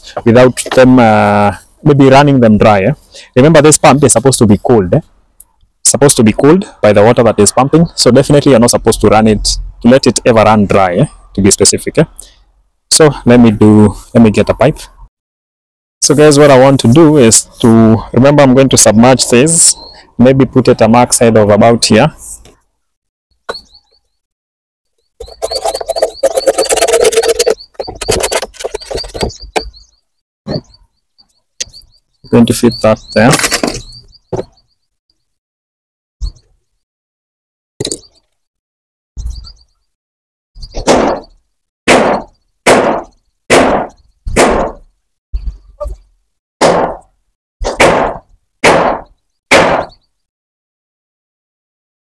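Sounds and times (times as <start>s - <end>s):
plastic pipe bumps and knocks: 25.2s - 29.8s, 33.3s - 34.6s
plastic pipe scraping and rubbing: 25.2s - 29.8s, 33.2s - 34.5s
sharp knocks: 40.8s - 41.3s, 41.9s - 44.9s, 46.6s - 50.0s.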